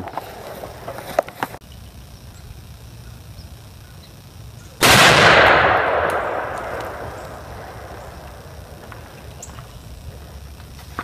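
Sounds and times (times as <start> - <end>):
rifle shot: 4.8 - 9.2.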